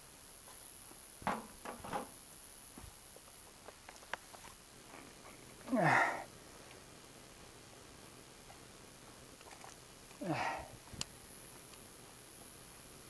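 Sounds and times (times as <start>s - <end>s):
man sighing: 5.7s - 6.3s, 10.2s - 10.7s
man sniffing: 5.7s - 6.3s, 10.2s - 10.8s.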